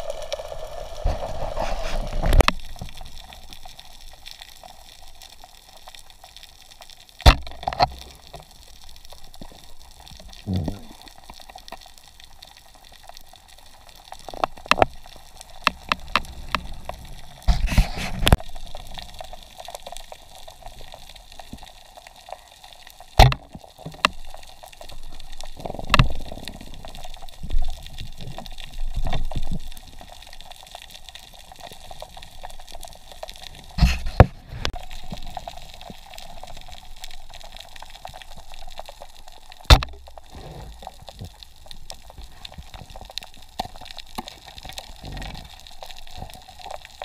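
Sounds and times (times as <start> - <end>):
water gurgling underwater: 7.3 - 11.6, 23.1 - 46.9.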